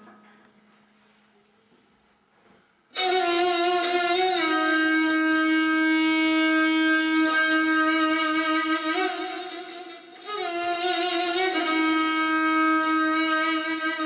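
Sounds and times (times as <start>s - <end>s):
violin bowed note: 3.0s - 14.0s.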